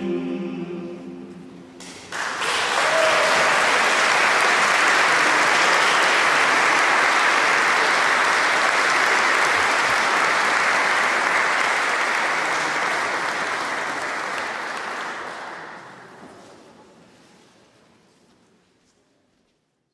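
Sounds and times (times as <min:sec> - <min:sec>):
audience applauding: 0:01.8 - 0:16.2.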